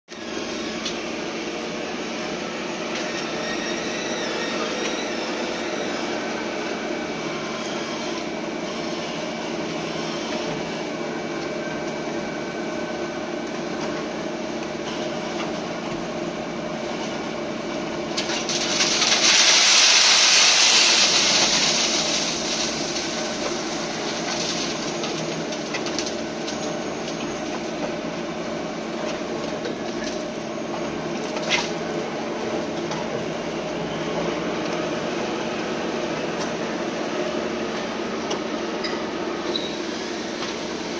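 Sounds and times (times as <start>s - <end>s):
wheel loader engine running: 0.5s - 40.9s
gravel pouring into metal hopper: 18.0s - 27.8s.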